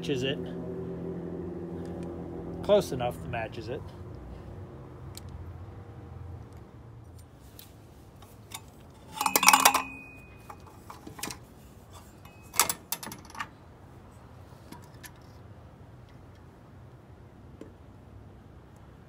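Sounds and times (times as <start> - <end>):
metal clinks and knocks: 8.4 - 13.6.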